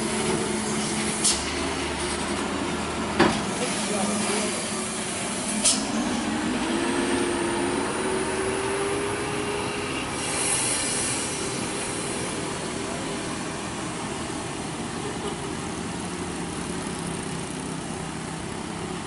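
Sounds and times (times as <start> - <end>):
diesel truck engine labouring: 0.0 - 19.0
air hiss: 10.1 - 12.6.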